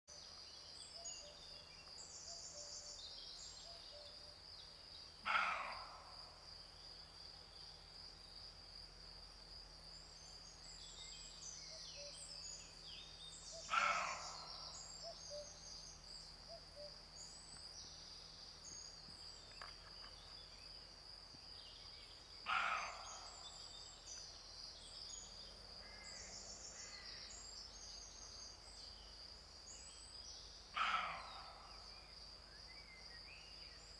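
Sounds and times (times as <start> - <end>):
deer barking: 13.7 - 14.3.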